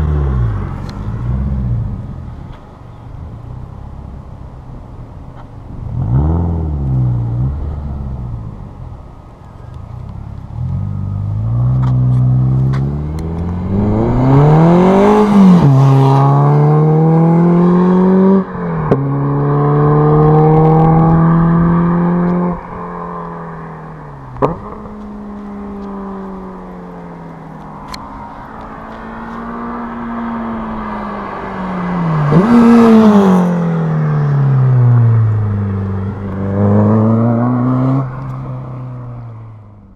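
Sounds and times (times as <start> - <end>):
car passing by: 10.6 - 22.8, 27.8 - 39.8
car engine revving hard: 10.7 - 22.6, 31.8 - 33.8.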